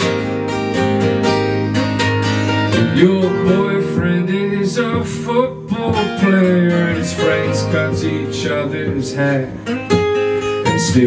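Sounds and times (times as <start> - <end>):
acoustic guitars strumming: 0.0 - 11.0
man singing: 2.7 - 9.9, 10.6 - 11.0.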